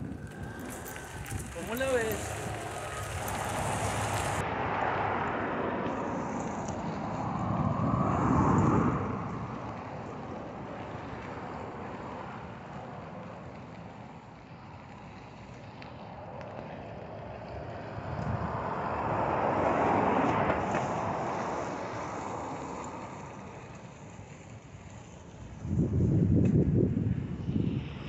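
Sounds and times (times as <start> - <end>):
bicycle tyres rolling on dirt: 0.0 - 4.5, 5.9 - 28.0
wind on microphone: 0.0 - 10.5, 25.5 - 28.0.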